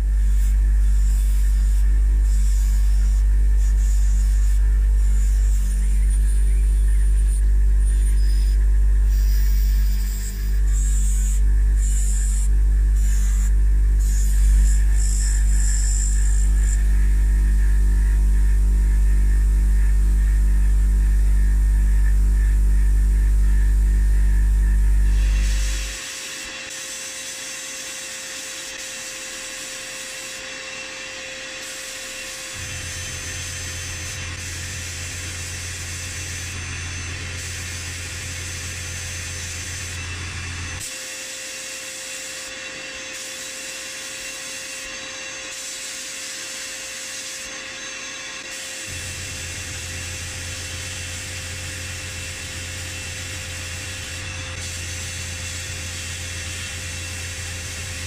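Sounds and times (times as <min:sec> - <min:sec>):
low hum: 0:00.0 - 0:26.0
steady whine: 0:00.0 - 0:58.0.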